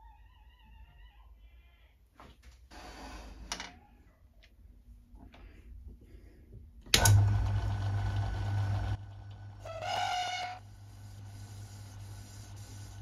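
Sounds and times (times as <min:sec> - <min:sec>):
lathe motor humming: 0:07.0 - 0:09.6.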